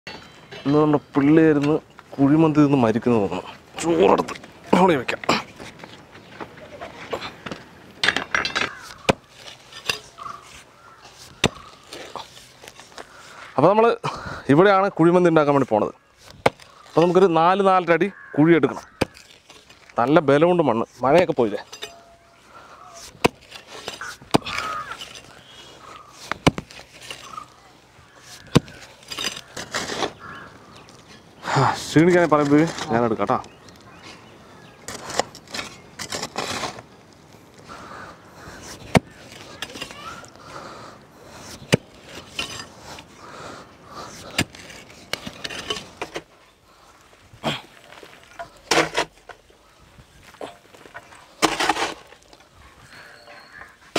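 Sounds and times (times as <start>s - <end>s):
pickaxe striking dry soil: 11.1s - 12.9s, 16.2s - 17.2s, 22.9s - 25.3s, 26.1s - 27.5s, 44.1s - 46.3s, 47.5s - 49.3s, 50.3s - 52.2s
earth clods crumbling: 15.6s - 31.2s, 43.9s - 53.9s.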